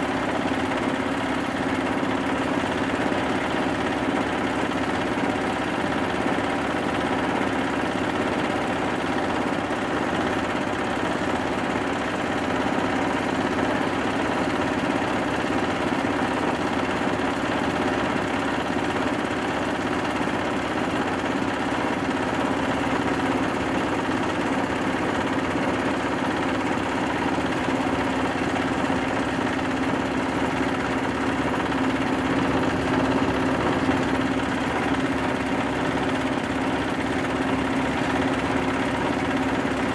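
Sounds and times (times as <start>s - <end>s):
grinding mill droning: 23.5s - 39.8s.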